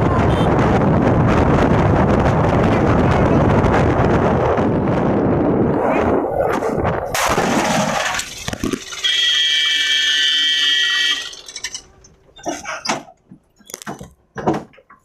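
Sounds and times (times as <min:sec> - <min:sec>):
wind and road noise: 0:00.0 - 0:15.0
sharp crash impact: 0:07.2 - 0:09.0
high-pitched screech: 0:08.6 - 0:12.6.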